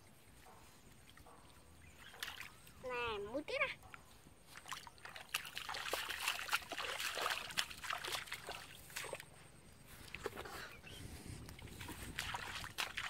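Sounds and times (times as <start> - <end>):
splashing in shallow water: 0.3 - 3.0, 4.4 - 13.0
wet slaps and drips: 2.0 - 2.7, 3.9 - 9.2, 11.5 - 13.0.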